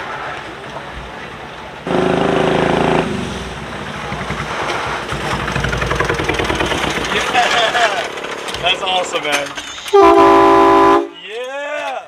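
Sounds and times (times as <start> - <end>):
truck horn blast: 1.9 - 3.4, 9.9 - 11.2
small engine pulsing exhaust: 1.9 - 8.3.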